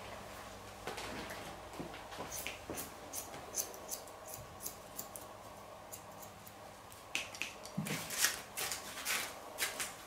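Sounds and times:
scissors snipping hair: 2.3s - 6.6s.

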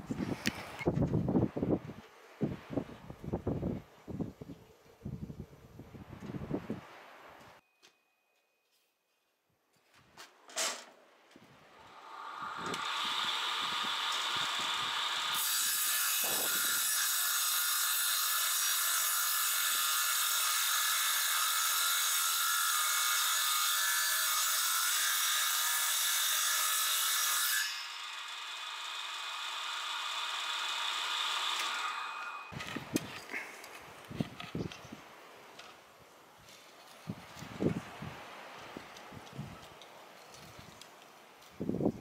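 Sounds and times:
saw cutting through wood: 11.7s - 33.4s
table saw blade whine: 11.8s - 32.6s.

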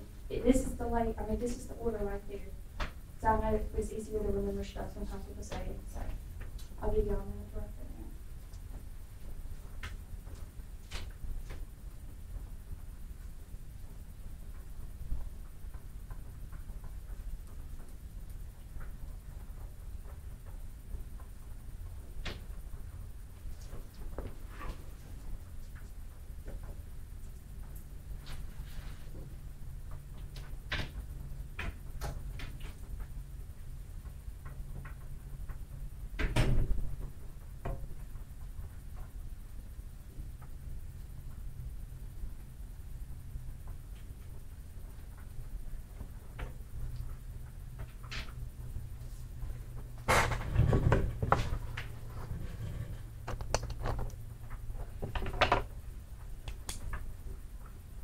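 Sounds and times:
steady low hum: 0.0s - 58.0s
small clicks and taps at desks: 2.8s - 3.0s, 8.4s - 11.7s, 14.4s - 24.4s, 25.2s - 28.4s, 29.1s - 39.2s, 53.2s - 57.8s.

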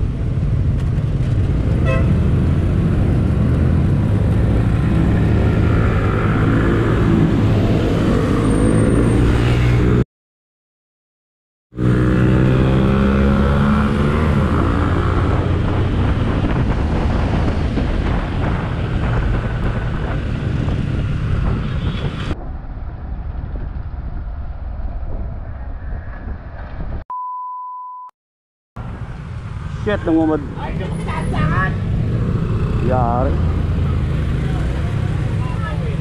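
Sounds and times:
road noise: 0.0s - 10.0s, 11.7s - 27.0s, 28.8s - 36.0s
motorcycle engine accelerating: 11.8s - 25.3s
wind on microphone: 13.8s - 27.0s
one-tone beep: 27.1s - 28.1s.

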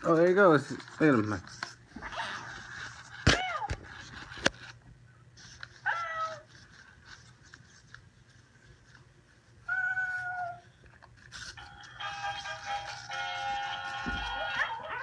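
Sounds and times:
electronic toy cat meows: 12.1s - 15.0s.

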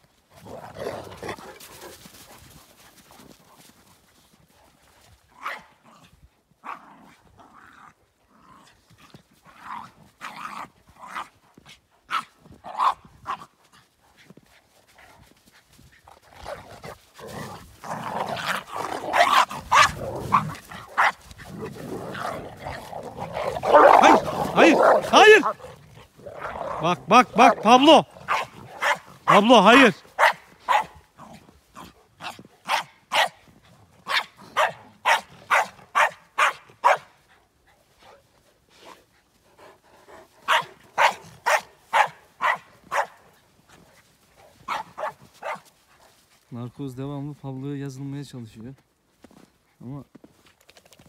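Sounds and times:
dogs growling and barking: 0.4s - 2.0s, 5.3s - 11.4s, 12.1s - 13.5s, 16.1s - 37.0s, 38.8s - 43.4s
dog yelps: 44.7s - 45.6s.

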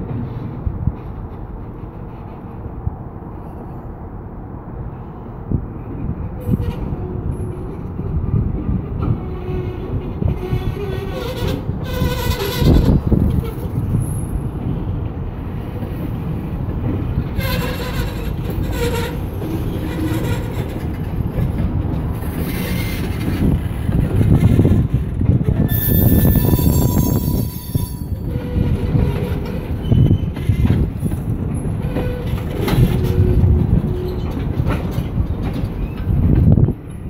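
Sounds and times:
freight cars rumbling: 0.0s - 37.0s
wheels clanking over rails: 6.0s - 37.0s
wheel squeal: 17.4s - 20.8s, 22.5s - 23.4s, 25.6s - 30.8s.

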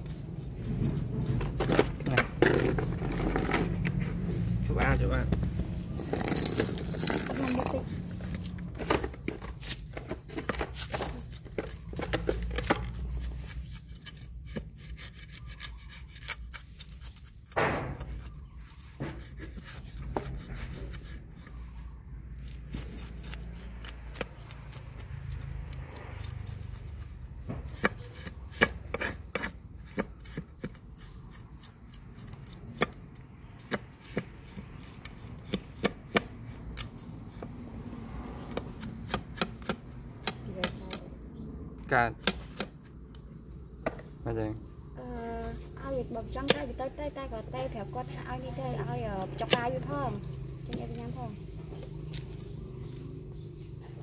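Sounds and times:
knife scraping fish scales: 0.0s - 3.9s, 5.7s - 40.1s.

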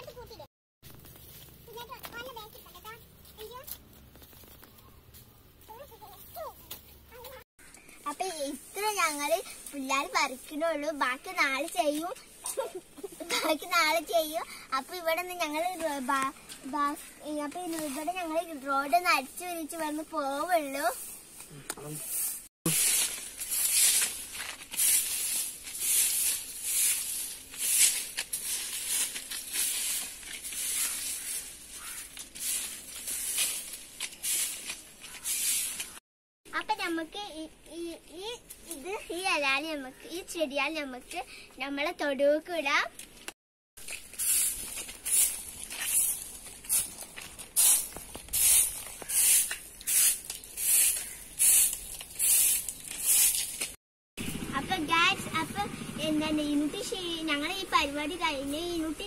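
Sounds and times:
broom sweeping dry leaves: 0.8s - 2.7s, 20.2s - 36.0s, 43.8s - 53.8s.

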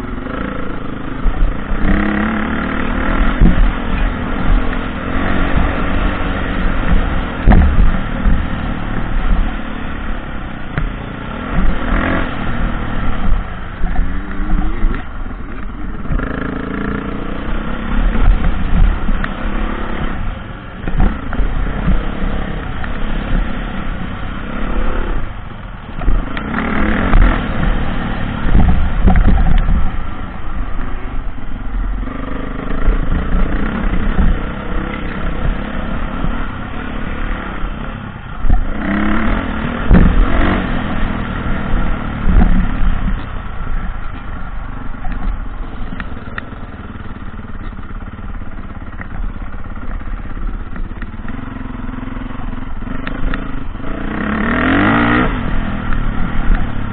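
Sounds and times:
dirt bike engine revving: 0.0s - 30.7s, 31.9s - 43.9s, 45.2s - 56.9s
knocks and rumble from bumpy ground: 0.0s - 56.9s.

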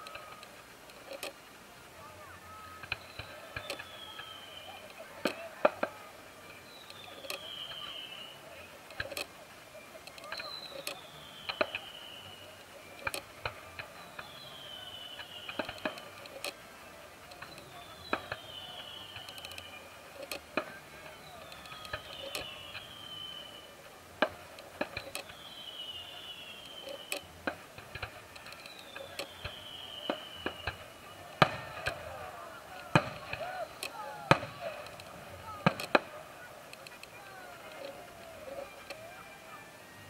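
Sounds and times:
distant fireworks bangs: 0.0s - 39.5s
falling whistle: 21.1s - 23.8s.

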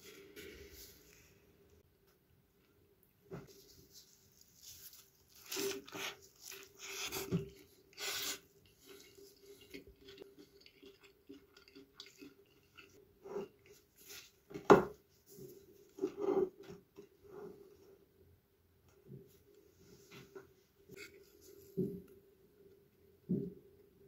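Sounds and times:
plastic gloves crinkling: 3.5s - 7.2s
crunchy rustles of toasted bread: 3.5s - 9.0s.

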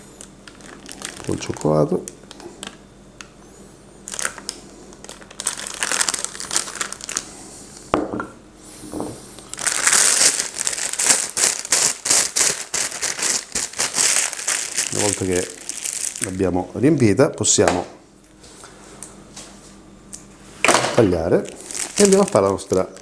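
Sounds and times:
plastic piping bag crinkling: 0.0s - 3.3s, 4.0s - 7.4s, 9.4s - 17.6s, 21.1s - 23.0s.

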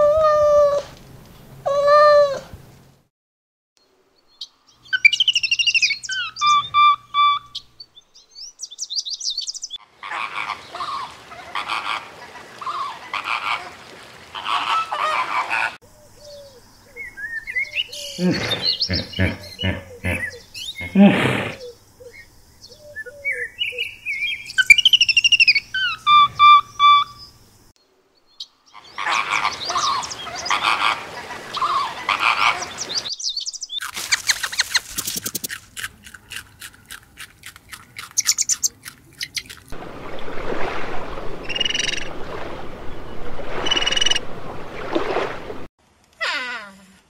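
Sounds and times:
harsh noisy animal calls: 18.0s - 21.7s.

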